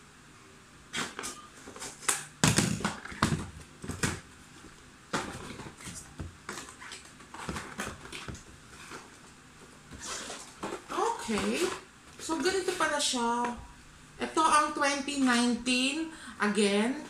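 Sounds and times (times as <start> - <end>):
cardboard flaps clicking and rustling: 5.1 - 9.2.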